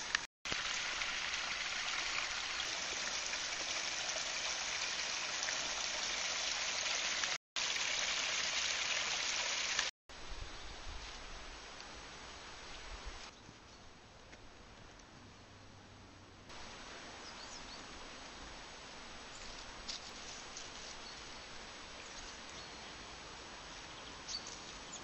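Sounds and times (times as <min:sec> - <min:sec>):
stream rushing over stones: 0:00.0 - 0:09.9.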